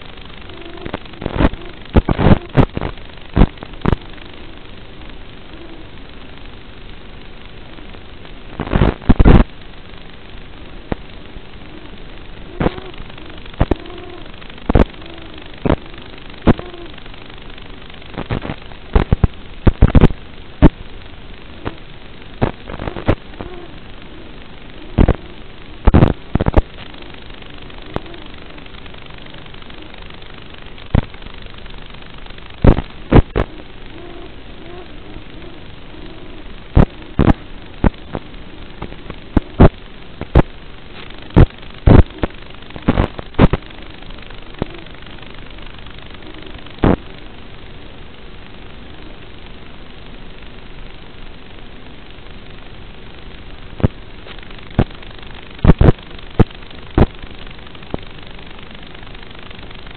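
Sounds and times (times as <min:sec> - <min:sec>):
loud crackles and pops: 0:00.0 - 0:59.9
static hiss: 0:00.0 - 0:59.9.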